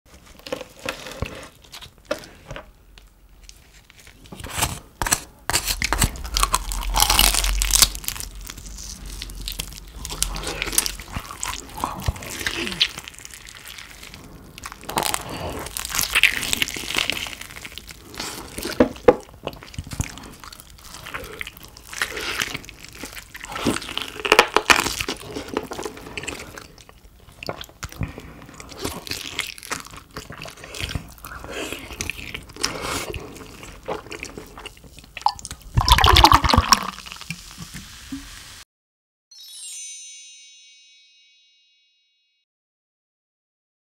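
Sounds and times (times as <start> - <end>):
crispy pork skin crunching: 3.4 - 37.2.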